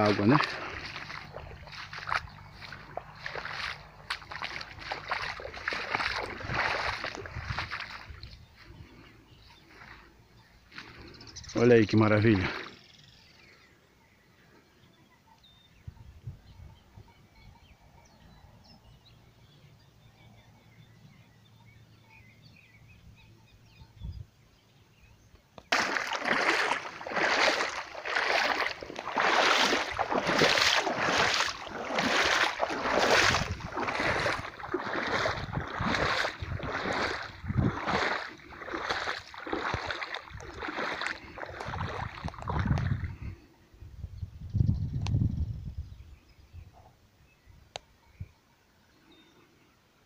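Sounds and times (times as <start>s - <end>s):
footsteps sloshing through water: 0.0s - 11.4s, 12.0s - 13.0s, 25.6s - 43.5s.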